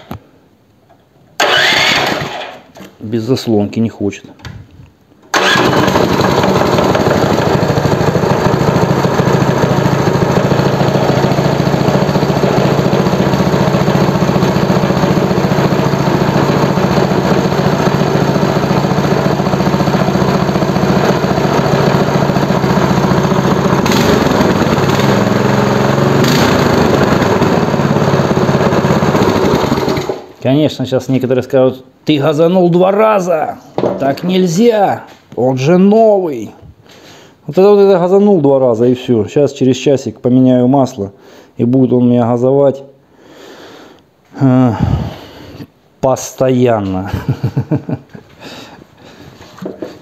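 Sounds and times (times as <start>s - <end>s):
small engine running and revving: 5.6s - 30.2s.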